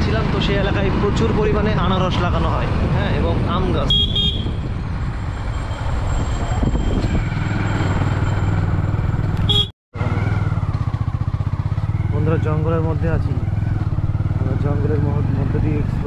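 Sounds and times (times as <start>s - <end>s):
motorcycle engine running: 8.4s - 16.0s.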